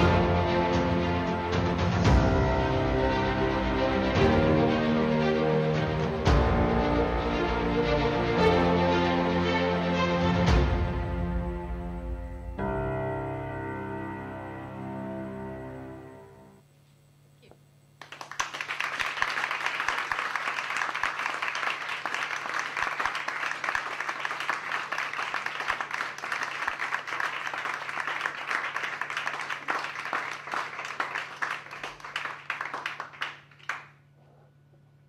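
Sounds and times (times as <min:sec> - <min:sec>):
audience applauding: 0:18.0 - 0:34.1.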